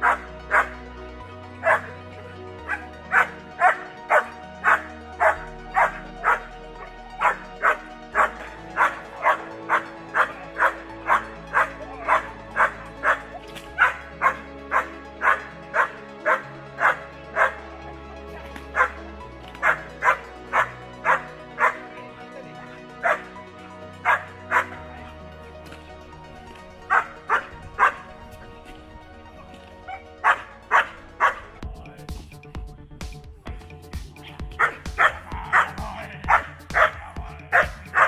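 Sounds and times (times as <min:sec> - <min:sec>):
dog barking: 0:00.0 - 0:00.7, 0:01.6 - 0:01.9, 0:02.6 - 0:06.5, 0:07.2 - 0:17.6, 0:18.8 - 0:19.0, 0:19.6 - 0:21.8, 0:23.0 - 0:23.3, 0:24.0 - 0:24.8, 0:26.9 - 0:28.1, 0:29.9 - 0:31.5, 0:34.6 - 0:38.0
background music with low notes: 0:00.0 - 0:38.0.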